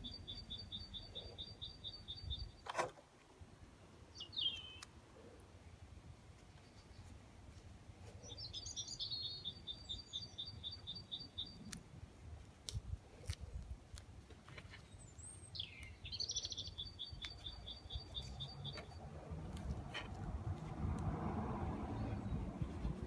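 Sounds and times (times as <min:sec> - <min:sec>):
songbird trilling: 0:00.0 - 0:02.6, 0:04.2 - 0:04.9, 0:15.1 - 0:19.0.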